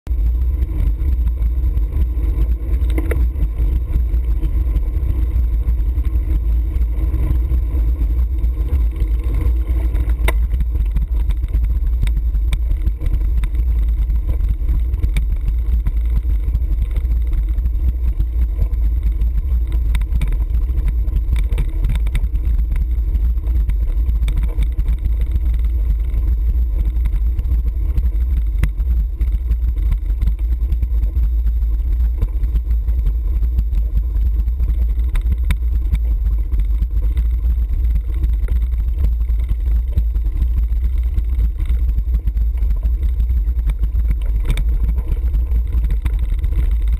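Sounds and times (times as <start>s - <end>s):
bicycle road vibration: 0.0s - 46.9s
wind rumble on microphone: 0.0s - 46.9s.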